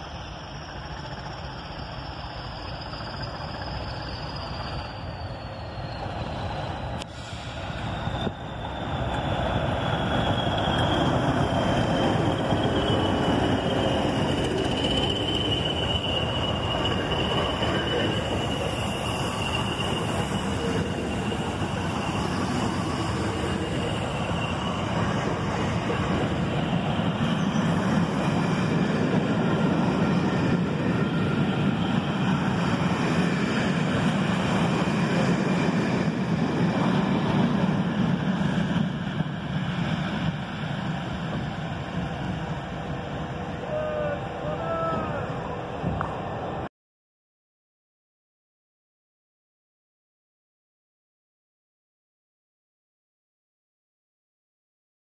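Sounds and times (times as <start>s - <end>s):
high thin wheel squeal: 0.0s - 35.6s
train wheels rumbling over rails: 0.0s - 46.7s.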